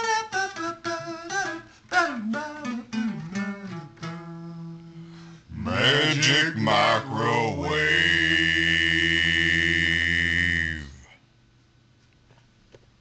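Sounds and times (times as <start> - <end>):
acoustic guitar playing: 0.0 - 10.0
person singing: 0.0 - 11.1.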